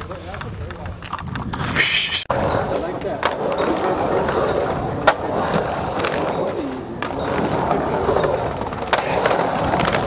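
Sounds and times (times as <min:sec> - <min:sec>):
skateboard wheels rolling on concrete: 0:02.5 - 0:10.0.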